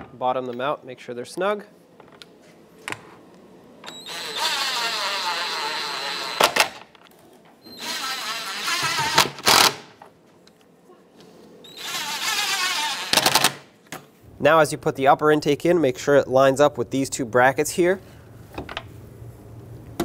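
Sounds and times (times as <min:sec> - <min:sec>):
impact driver spinning a stud: 0:07.7 - 0:09.9.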